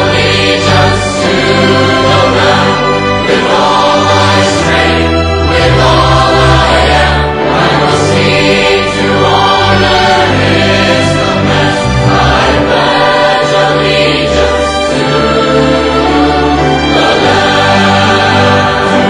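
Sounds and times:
mixed choir singing: 0:00.0 - 0:19.0
string orchestra: 0:00.0 - 0:19.0.

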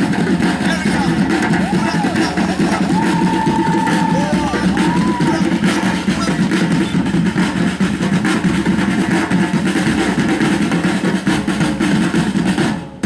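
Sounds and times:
loud distorted show music: 0:00.0 - 0:08.5.

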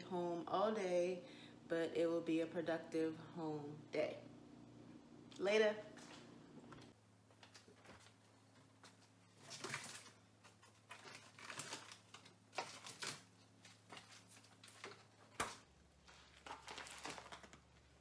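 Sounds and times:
low freezer hum: 0:00.0 - 0:18.0
rustling of plastic-wrapped packages: 0:07.4 - 0:18.0.

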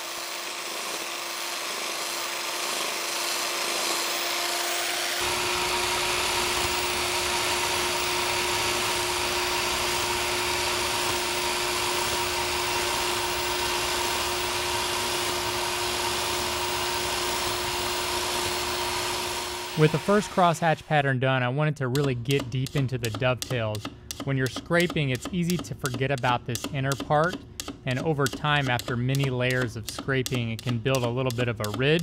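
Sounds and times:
electric scraper on metal: 0:00.0 - 0:20.5.

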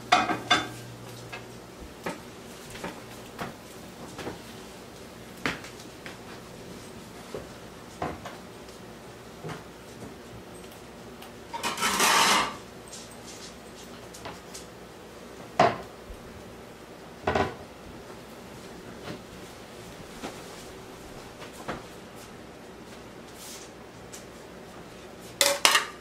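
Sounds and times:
dishes and cutlery clinking: 0:00.1 - 0:00.8, 0:11.5 - 0:13.6, 0:25.4 - 0:26.0.

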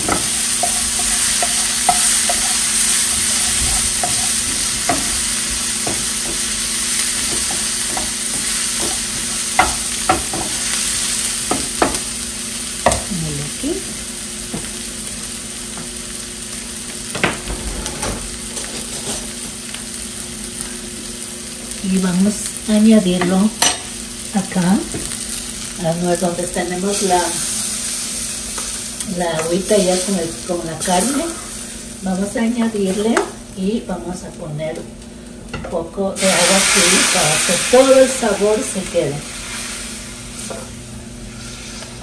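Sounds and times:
onions sizzling in oil: 0:00.0 - 0:42.0
wooden spoon knocking on pan: 0:03.8 - 0:05.2, 0:05.8 - 0:06.5, 0:07.2 - 0:10.6, 0:11.5 - 0:12.0, 0:12.8 - 0:13.1.

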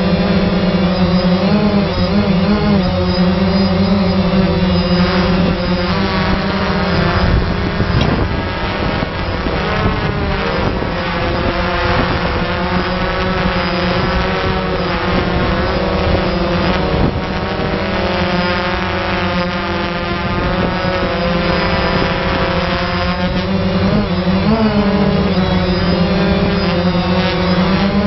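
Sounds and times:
drone rotors hovering: 0:00.0 - 0:28.0.

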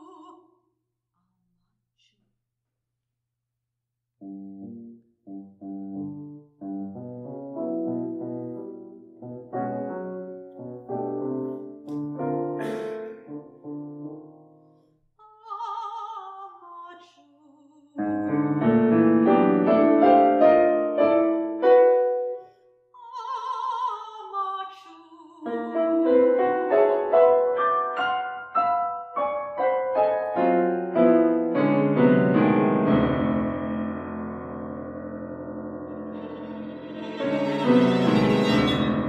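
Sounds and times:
soprano singing: 0:00.0 - 0:00.5, 0:15.2 - 0:18.7, 0:23.0 - 0:27.7
loud piano chords: 0:04.2 - 0:14.7, 0:18.0 - 0:22.4, 0:25.6 - 0:39.0
violin and cello: 0:35.9 - 0:39.0.

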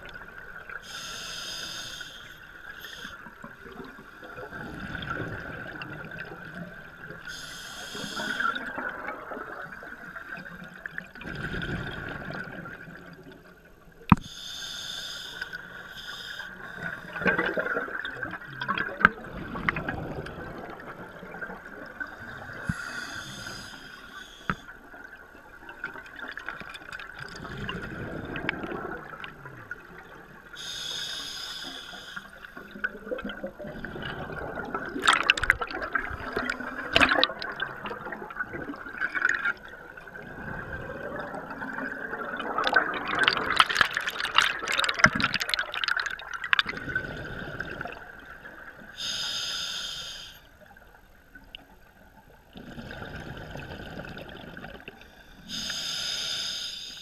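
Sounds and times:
diver breathing through regulator: 0:00.8 - 0:03.2, 0:07.3 - 0:08.6, 0:14.2 - 0:17.4, 0:22.3 - 0:24.7, 0:30.6 - 0:32.6, 0:49.0 - 0:50.5, 0:55.1 - 0:57.0
bubbling exhalations: 0:40.1 - 0:48.2.

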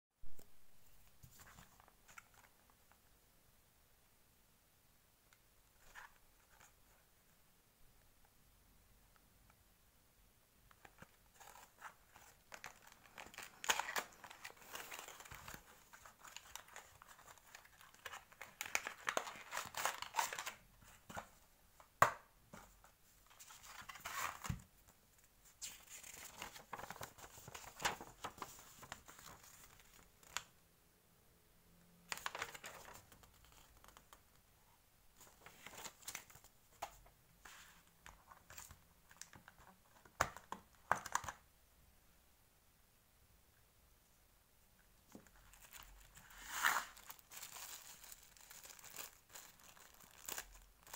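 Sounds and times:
packaging rustling and crinkling: 0:11.0 - 0:21.3, 0:45.2 - 0:50.9.

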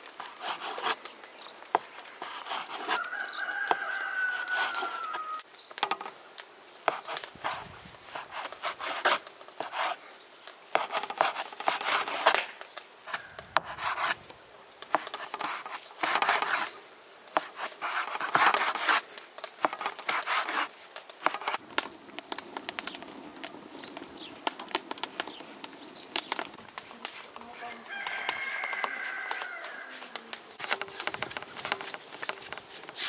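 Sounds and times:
wood fire crackling: 0:00.0 - 0:33.0
dough cutter scraping on board: 0:02.2 - 0:03.0, 0:10.7 - 0:12.5, 0:13.1 - 0:14.2, 0:14.9 - 0:16.7, 0:17.4 - 0:19.0, 0:19.6 - 0:21.6, 0:30.6 - 0:33.0.

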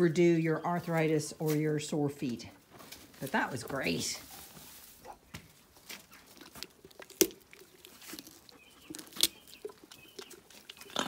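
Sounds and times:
pony chewing carrot: 0:05.9 - 0:11.0
carrot snapping: 0:06.5 - 0:08.3, 0:08.9 - 0:09.4.

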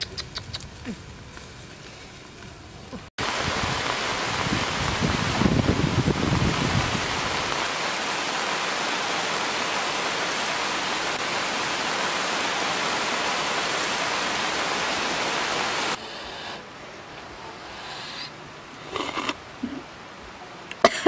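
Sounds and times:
heavy rain pouring: 0:03.0 - 0:16.0.

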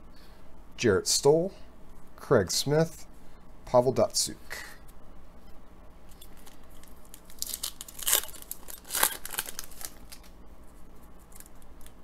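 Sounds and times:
foil wrapper tearing and crinkling: 0:06.1 - 0:10.4, 0:11.2 - 0:12.0.

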